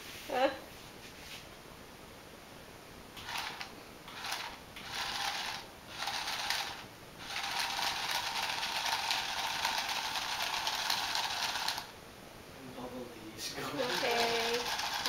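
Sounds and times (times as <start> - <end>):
toy motor and gears whirring: 3.2 - 11.9, 13.8 - 15.0.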